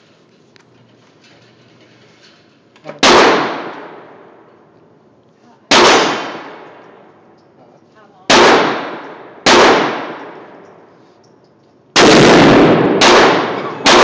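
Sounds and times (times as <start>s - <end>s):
rifle shots echoing indoors: 3.0s - 4.4s, 5.7s - 7.2s, 8.3s - 10.9s, 11.9s - 14.0s.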